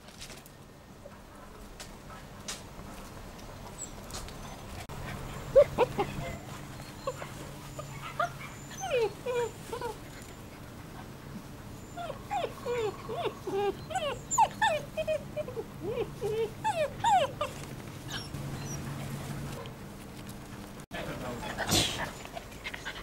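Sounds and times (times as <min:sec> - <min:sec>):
puppies yipping and whining: 0:03.7 - 0:10.8, 0:11.6 - 0:19.4.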